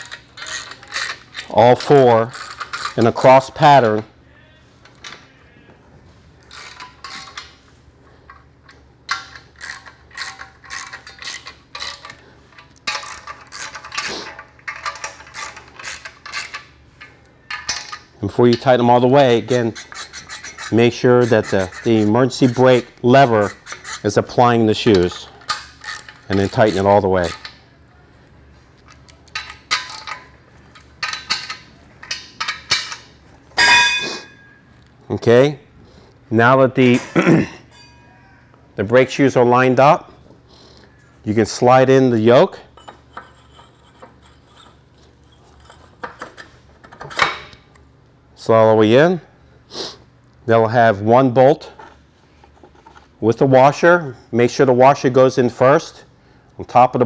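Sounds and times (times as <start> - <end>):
wrench clinking on metal bolts: 0.0 - 4.0, 6.5 - 7.6, 8.3 - 27.6, 28.9 - 34.6, 42.7 - 47.6
ratchet wrench clicking: 6.5 - 7.5, 9.1 - 16.7, 24.8 - 27.6.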